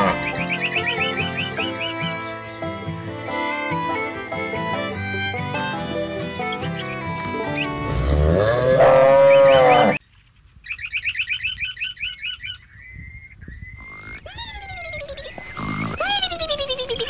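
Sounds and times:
cow mooing: 0.0 - 0.2, 7.8 - 10.0.

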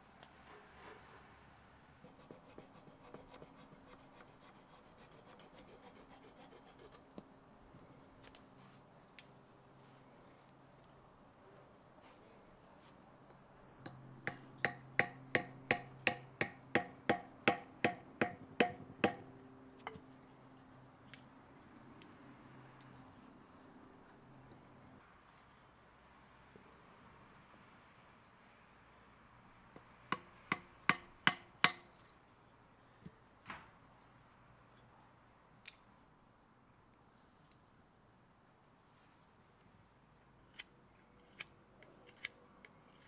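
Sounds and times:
baton knocking on metal: 14.3 - 19.2.

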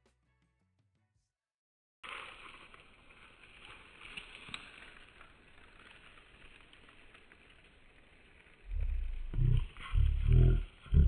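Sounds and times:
dry grass crackling underfoot: 2.0 - 10.7.

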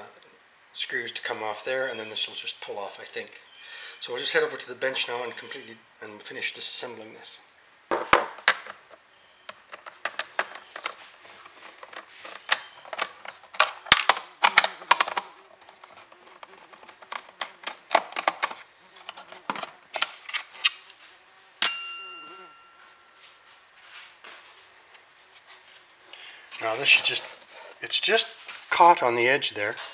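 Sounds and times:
metal part dropping with clink: 21.6 - 23.0.

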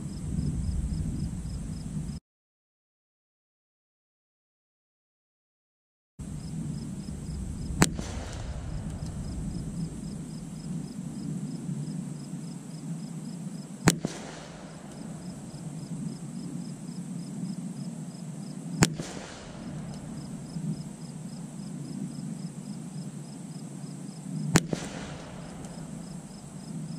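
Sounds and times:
rifle shots with echo: 7.6 - 10.7, 13.8 - 16.0, 18.8 - 21.2, 24.4 - 26.9.

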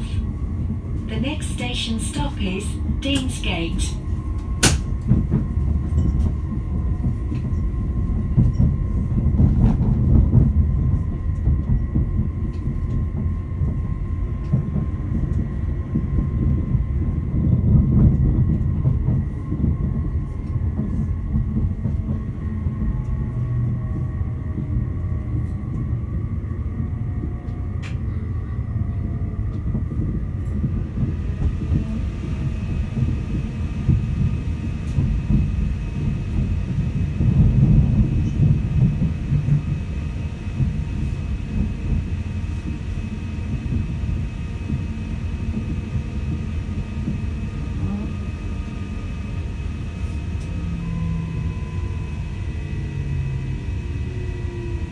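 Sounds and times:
train wheels rumbling on rail: 0.0 - 54.9
track clicks: 1.2 - 5.0
faint steady whine: 30.6 - 54.9.

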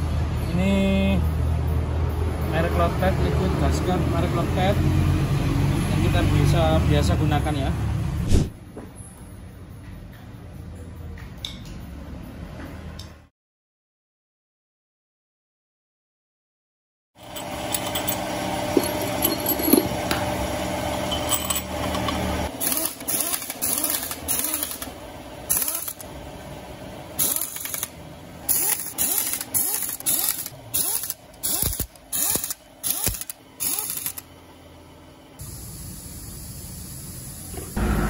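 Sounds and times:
hand ratchet clicking: 21.3 - 24.9, 25.5 - 26.0, 27.2 - 27.9, 28.5 - 34.2.

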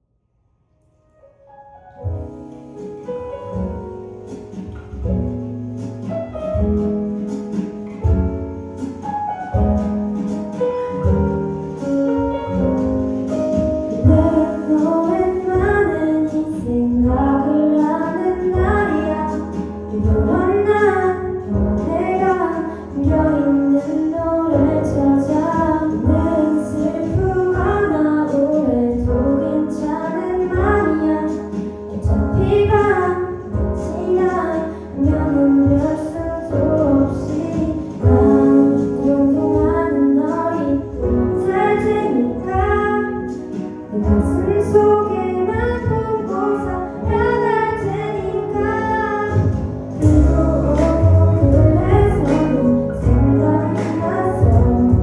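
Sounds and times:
backing track with beat: 2.0 - 55.0
girl singing pop ballad: 14.0 - 55.0.

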